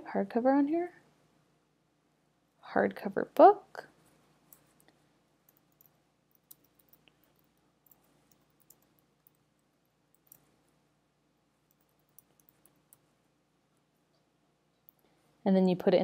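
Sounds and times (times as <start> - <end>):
computer keyboard typing: 5.5 - 9.4, 11.7 - 13.0.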